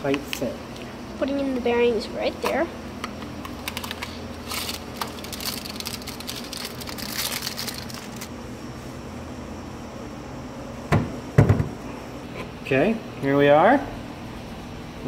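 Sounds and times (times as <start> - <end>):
low room hum: 0.0 - 15.0
ball bearings and packaging crackling: 2.4 - 8.3.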